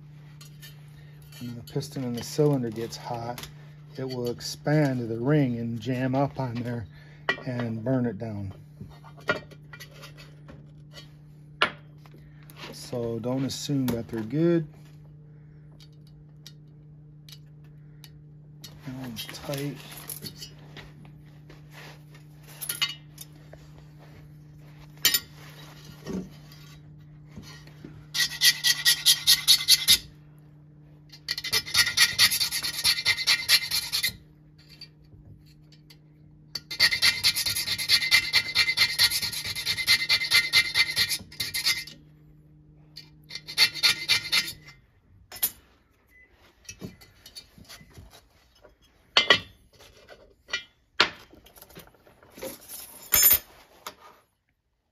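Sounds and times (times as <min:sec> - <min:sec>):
file rasping on metal: 0:28.1 - 0:30.1, 0:31.3 - 0:34.2, 0:36.6 - 0:42.0, 0:43.3 - 0:44.7.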